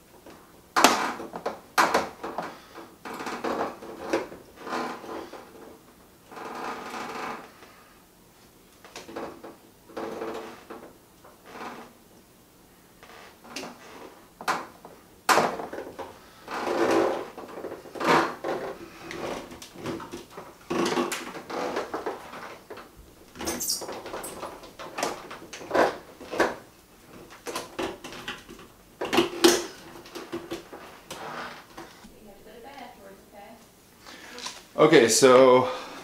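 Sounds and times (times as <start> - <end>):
plastic hoses knocking and scraping: 0.2 - 7.4, 13.4 - 32.2.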